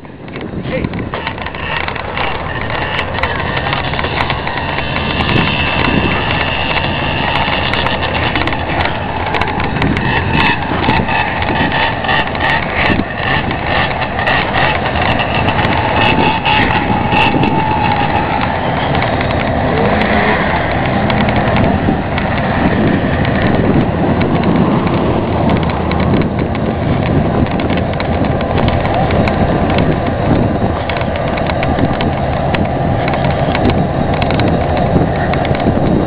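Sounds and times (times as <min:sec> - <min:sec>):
vehicle engines revving: 0:00.0 - 0:36.0.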